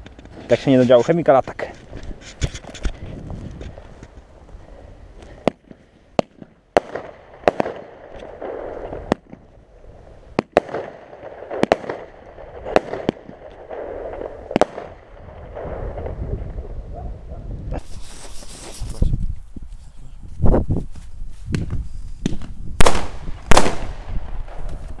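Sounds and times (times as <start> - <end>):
fireworks shots firing: 5.4 - 9.7, 10.3 - 16.6, 21.5 - 25.0.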